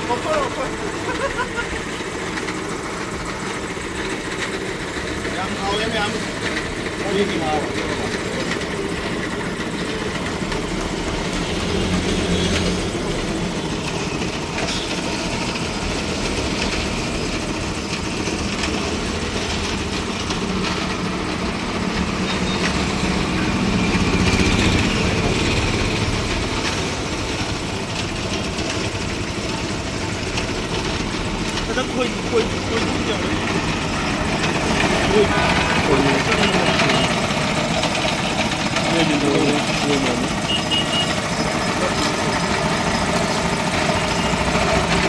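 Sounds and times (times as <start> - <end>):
vehicle engines: 0.0 - 45.0.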